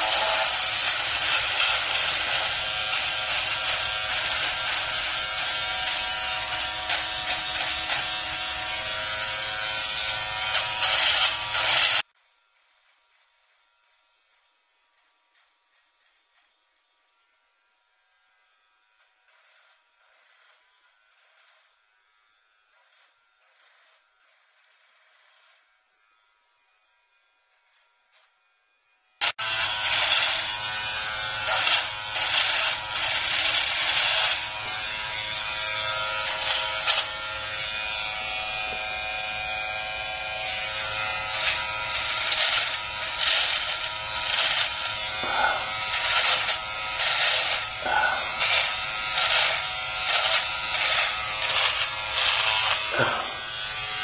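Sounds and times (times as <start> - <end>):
electric hair trimmer buzzing: 0.0 - 54.0.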